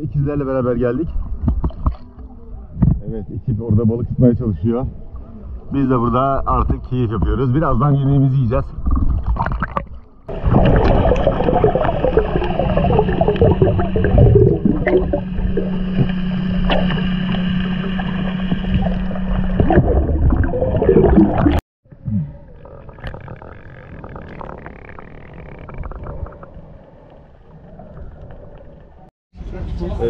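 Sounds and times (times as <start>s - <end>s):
water gurgling and splashing: 8.6s - 29.1s
low steady hum: 10.0s - 24.4s.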